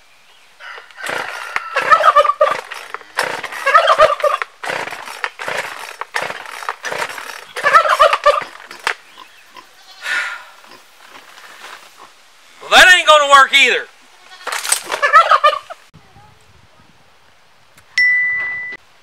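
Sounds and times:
turkey gobbling: 0:00.6 - 0:04.6, 0:07.4 - 0:08.9, 0:14.9 - 0:15.9
short rough noises: 0:00.7 - 0:09.0, 0:14.3 - 0:15.2.

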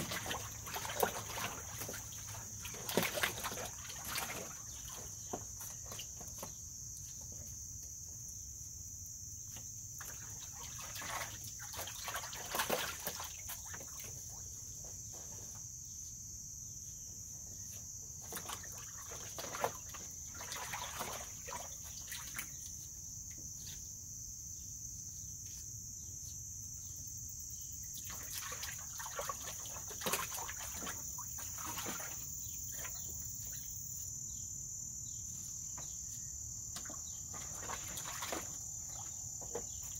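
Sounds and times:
water splashing in a pool: 0:00.0 - 0:06.2, 0:10.0 - 0:14.5, 0:18.2 - 0:22.8, 0:27.9 - 0:33.8, 0:36.8 - 0:39.7
insects trilling: 0:00.0 - 0:39.9.

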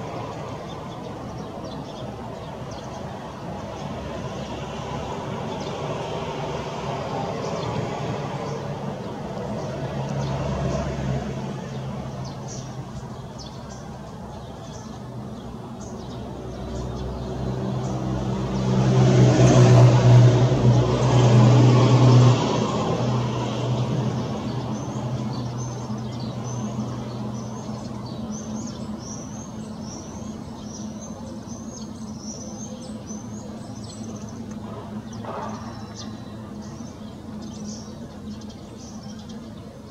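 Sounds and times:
vehicle passing: 0:04.0 - 0:13.1, 0:16.0 - 0:31.0
bird chirping: 0:11.6 - 0:18.1, 0:23.8 - 0:39.9.

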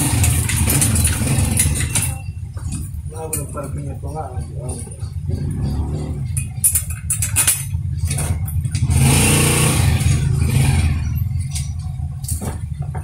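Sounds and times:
small metal parts clicking: 0:00.0 - 0:03.7, 0:05.6 - 0:08.9
low engine rumble: 0:00.0 - 0:13.0.

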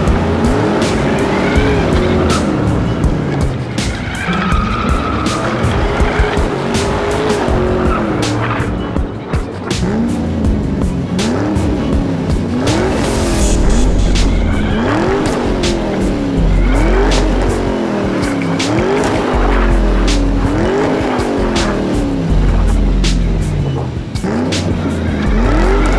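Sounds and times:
music with heavy bass: 0:00.0 - 0:25.9
racing car engine revving: 0:00.0 - 0:25.9
tyre squeals: 0:03.9 - 0:06.5.

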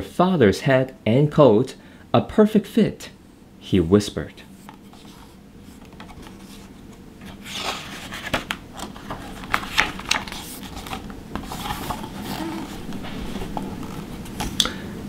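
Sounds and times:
book page rustling: 0:04.6 - 0:14.6.

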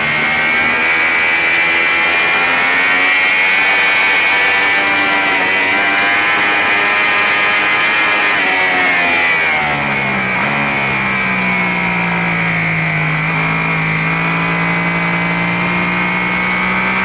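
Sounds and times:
motorcycle engine revving high: 0:00.0 - 0:17.0.

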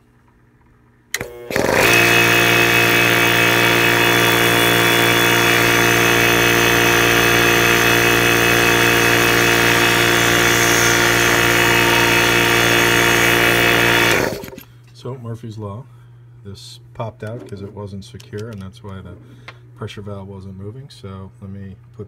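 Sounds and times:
air compressor motor humming: 0:01.1 - 0:14.7.

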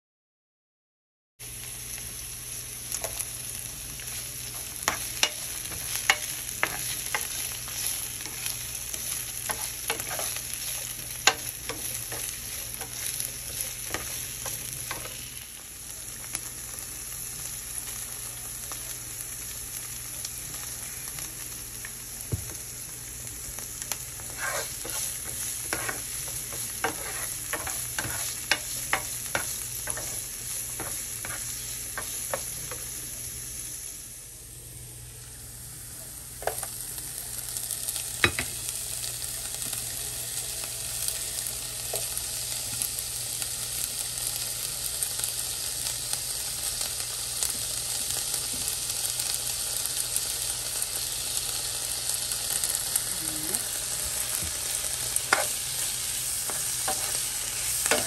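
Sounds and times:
onions sizzling in oil: 0:01.4 - 0:58.0
spoon scraping a pan: 0:04.1 - 0:15.1, 0:24.2 - 0:32.5, 0:55.2 - 0:58.0.

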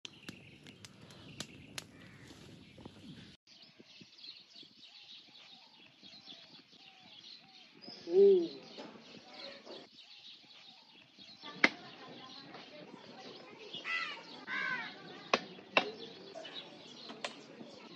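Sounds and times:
wood fire crackling: 0:00.0 - 0:03.4
birds chirping: 0:00.0 - 0:17.9.

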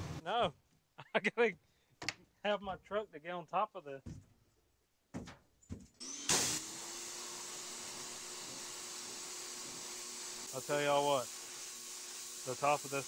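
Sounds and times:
knocks: 0:04.0 - 0:04.3, 0:05.1 - 0:06.0
pressure washer motor humming: 0:06.0 - 0:13.0
high-pressure water spray hissing: 0:06.3 - 0:13.0.

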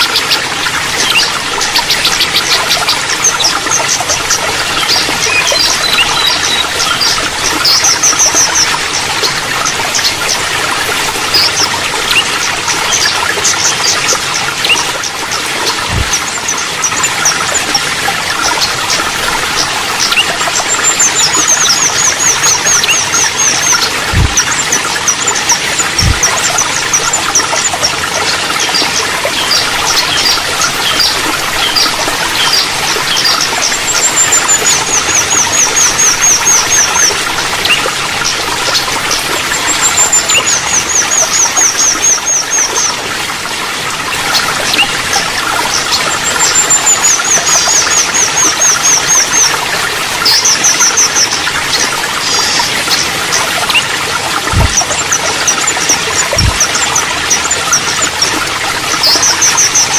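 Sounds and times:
bird song with fast chirps: 0:00.0 - 0:59.9
water trickling: 0:00.0 - 0:59.9
short low thumps: 0:24.1 - 0:24.4, 0:54.5 - 0:54.8.

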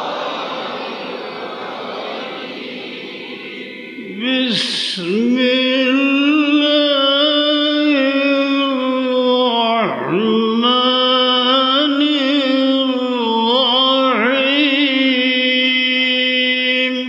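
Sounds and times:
man chanting: 0:03.8 - 0:17.0.

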